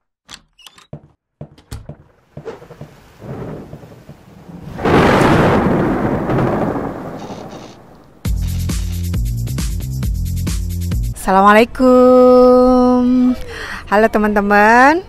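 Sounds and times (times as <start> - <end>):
sharp knocks: 0.3 - 4.8
rain: 2.2 - 8.3
loud thunder crash: 2.5 - 8.4.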